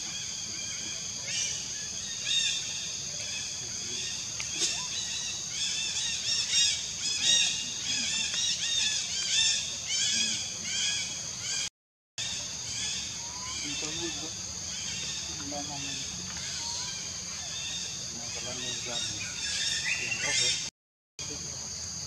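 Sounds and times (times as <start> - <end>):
high-pitched insect drone: 12.2 - 19.4.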